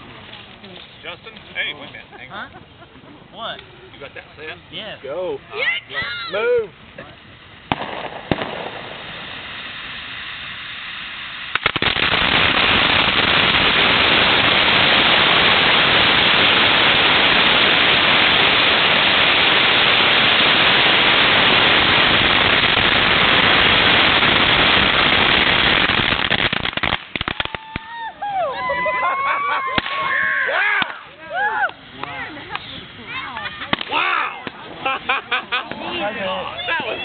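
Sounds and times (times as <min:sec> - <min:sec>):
firecrackers hissing: 0:00.0 - 0:37.0
rapid firecracker bangs: 0:07.6 - 0:27.9, 0:29.7 - 0:30.1, 0:30.7 - 0:31.1, 0:31.9 - 0:34.8.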